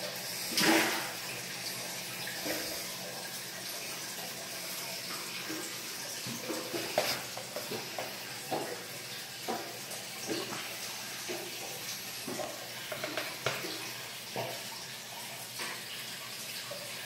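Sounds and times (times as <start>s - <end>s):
aquarium water bubbling: 0.0s - 17.0s
fish splashing at surface: 0.5s - 1.4s.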